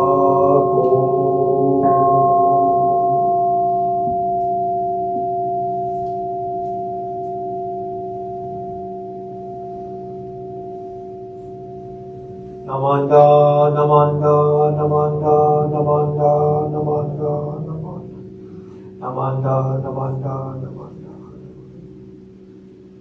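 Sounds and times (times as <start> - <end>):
chanting: 0.0 - 4.0, 12.6 - 18.3
bowl bell ringing: 0.0 - 23.0.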